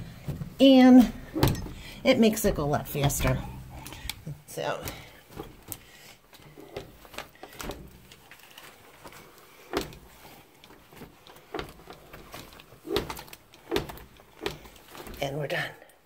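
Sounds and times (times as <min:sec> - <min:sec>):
mop wiping window glass: 0:00.0 - 0:15.4
light knocks and bumps: 0:00.0 - 0:15.6.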